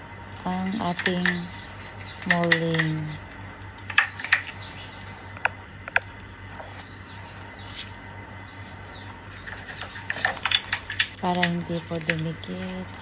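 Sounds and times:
baking cups clicking and tapping: 0:00.4 - 0:04.6, 0:09.4 - 0:13.0.

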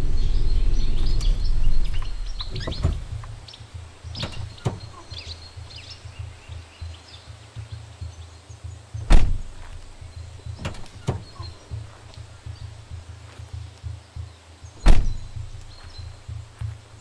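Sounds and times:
truck door slamming: 0:00.0 - 0:06.6, 0:09.0 - 0:12.9, 0:14.8 - 0:17.0
low rumble: 0:00.0 - 0:06.8, 0:14.8 - 0:17.0.

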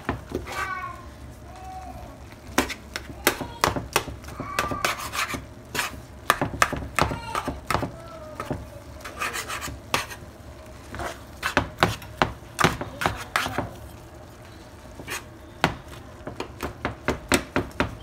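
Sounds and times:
metal spatula scraping skillet: 0:04.8 - 0:06.0, 0:09.0 - 0:10.2, 0:15.0 - 0:15.3.

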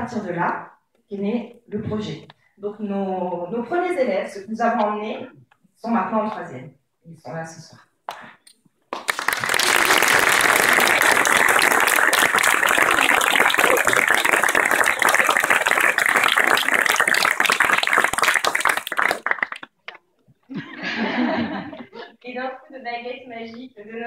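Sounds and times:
crowd applauding: 0:08.9 - 0:20.0.

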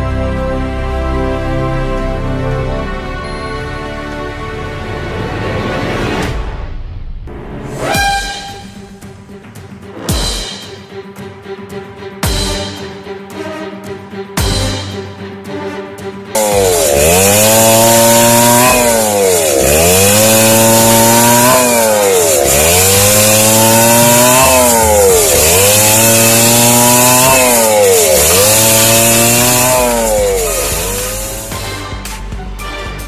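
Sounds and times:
power saw whining: 0:07.8 - 0:09.1, 0:16.4 - 0:31.7.

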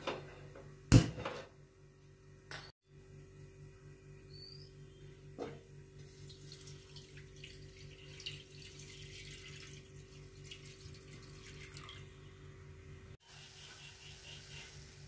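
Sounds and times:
steady low hum: 0:00.2 - 0:15.0
milk pouring into pan: 0:06.2 - 0:12.1.

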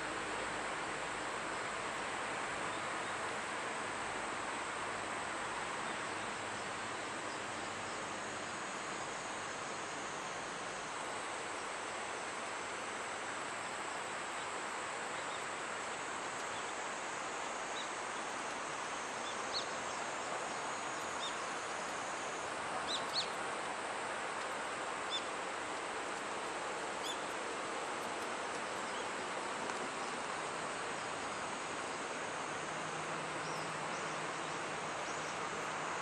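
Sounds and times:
outdoor background hiss: 0:00.0 - 0:36.0.

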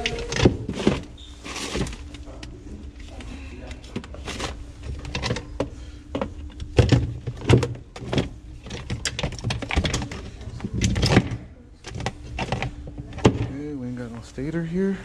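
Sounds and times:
clicks and knocks of handling: 0:00.0 - 0:13.5
low steady hum: 0:00.0 - 0:15.0.

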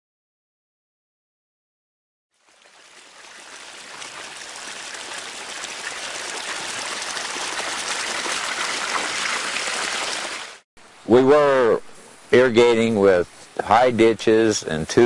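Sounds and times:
water gushing onto grass: 0:02.3 - 0:10.6.

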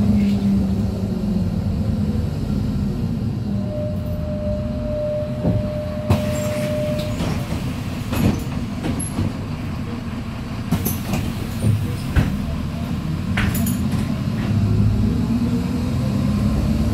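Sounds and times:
bus diesel engine rumble: 0:00.0 - 0:16.9
steady tone: 0:03.4 - 0:07.2.

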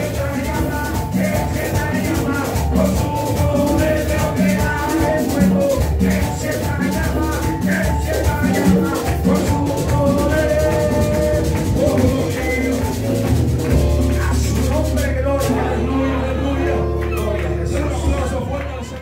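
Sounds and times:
men singing through pa: 0:00.0 - 0:13.1, 0:13.9 - 0:18.0
shaker rhythm: 0:00.0 - 0:15.8
drums: 0:00.0 - 0:15.9.

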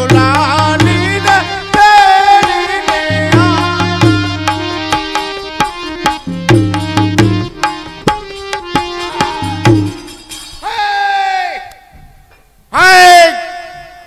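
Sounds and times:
hand drum in brisk rhythm: 0:00.0 - 0:10.6
held melodic notes: 0:00.3 - 0:10.6.

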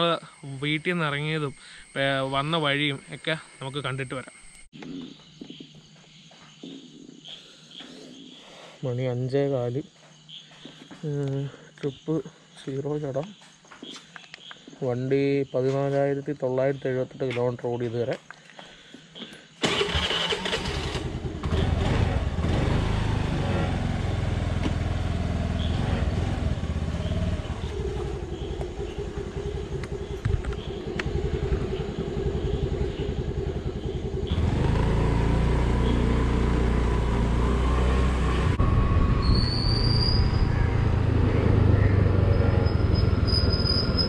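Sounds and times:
scooter engine running: 0:19.6 - 0:38.6
road and wind noise: 0:19.6 - 0:44.0.

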